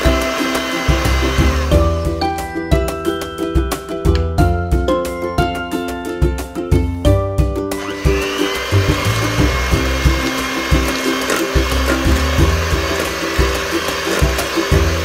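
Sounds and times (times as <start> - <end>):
electric hand mixer whine: 0.0 - 2.1, 7.8 - 15.0
background music with bass: 0.0 - 15.0.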